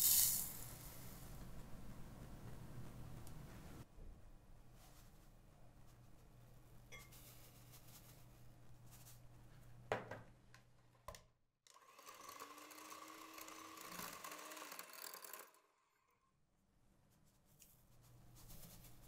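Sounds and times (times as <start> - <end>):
electric hand mixer running: 11.7 - 16.0.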